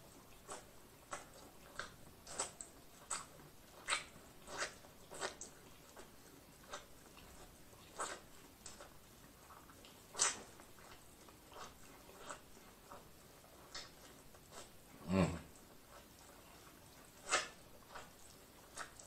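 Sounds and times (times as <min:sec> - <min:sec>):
chewing corn on the cob: 0:00.0 - 0:19.0
mouth smacks: 0:13.6 - 0:15.7.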